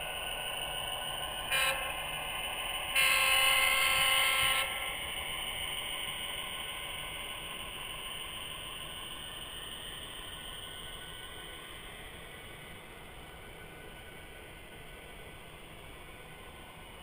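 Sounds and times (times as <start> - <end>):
model locomotive running sound: 0.0 - 17.0
model locomotive horn: 1.5 - 2.0, 2.9 - 5.0.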